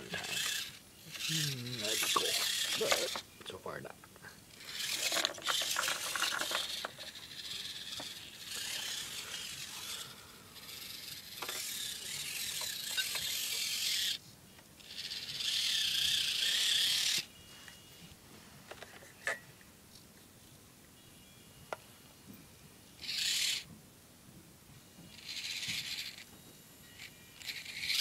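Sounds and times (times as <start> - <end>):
small electric motor whining: 0.0 - 3.3, 4.5 - 14.2, 14.8 - 18.2, 23.0 - 23.7, 25.1 - 28.0.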